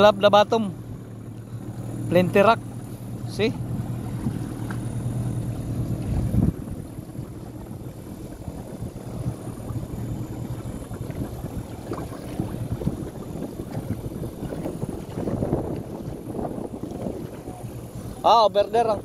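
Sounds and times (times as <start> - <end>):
boat engine running: 0.0 - 19.0
hiss of water and wind: 0.0 - 19.0.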